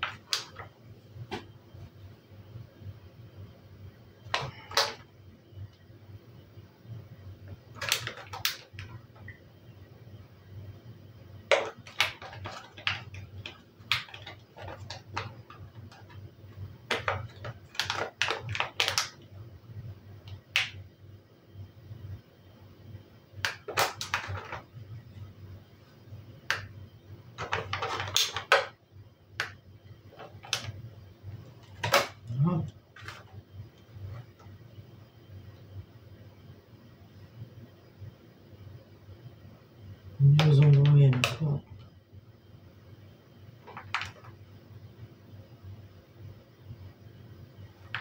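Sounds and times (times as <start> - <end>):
faint low hum: 0.0 - 48.0
plastic tray crinkling: 7.8 - 9.0, 11.5 - 16.2, 27.4 - 28.7.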